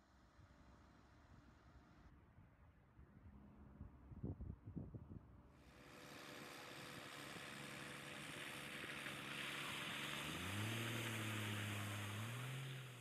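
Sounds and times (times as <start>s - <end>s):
truck engine driving past: 7.2s - 13.0s
tyres hissing on gravel: 8.5s - 13.0s.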